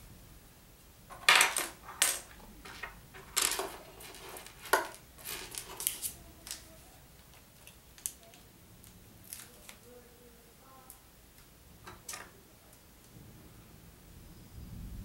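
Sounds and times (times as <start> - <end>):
plastic toy bricks clattering: 1.1 - 6.7.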